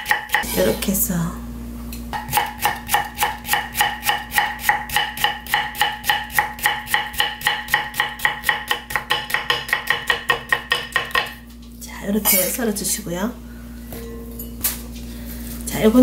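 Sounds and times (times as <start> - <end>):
knife chopping on wooden board: 2.2 - 11.4.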